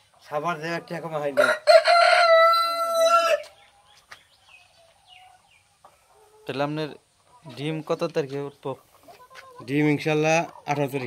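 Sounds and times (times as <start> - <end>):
hens clucking: 0.0 - 11.0
rooster crowing: 1.4 - 3.4.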